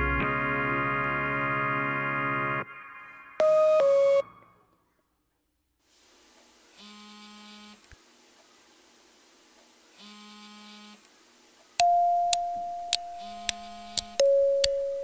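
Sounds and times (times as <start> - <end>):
bell-like ding: 11.8 - 15.0
sharp electronic ticks: 11.8 - 15.0.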